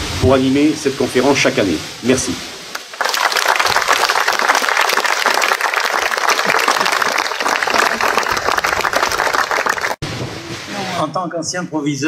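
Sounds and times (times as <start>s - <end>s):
crowd applauding: 2.8s - 10.0s.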